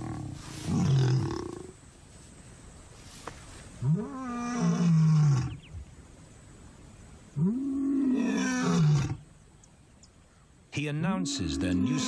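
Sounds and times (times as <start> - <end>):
lion roaring: 11.2 - 12.0.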